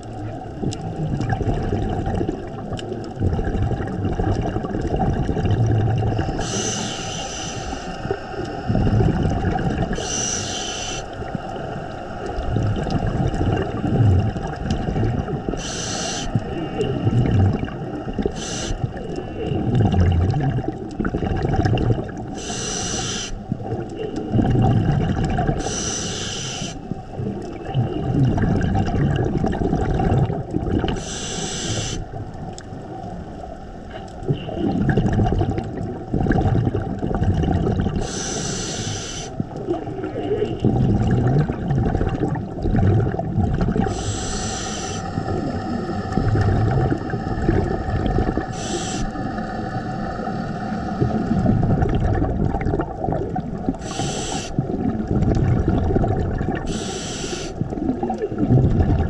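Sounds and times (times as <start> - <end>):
underwater bubbling and rumbling: 0.0 - 59.0
regulator hiss on inhalation: 6.3 - 8.7, 10.0 - 11.2, 15.5 - 17.0, 18.3 - 19.4, 22.4 - 23.4, 25.6 - 26.9, 31.0 - 32.1, 38.0 - 39.4, 43.8 - 46.5, 48.4 - 51.4, 53.8 - 54.6, 56.7 - 57.6.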